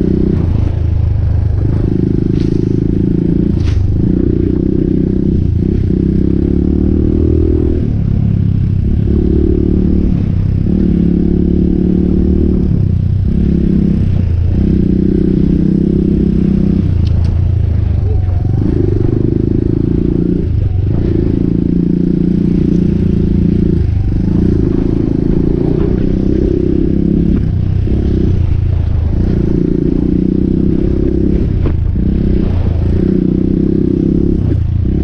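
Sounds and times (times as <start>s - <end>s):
motorcycle engine running: 0.0s - 35.0s.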